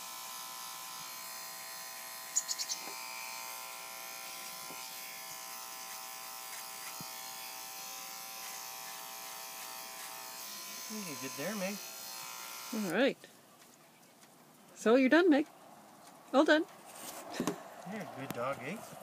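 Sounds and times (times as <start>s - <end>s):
electric hair clipper buzzing: 0.0s - 13.0s.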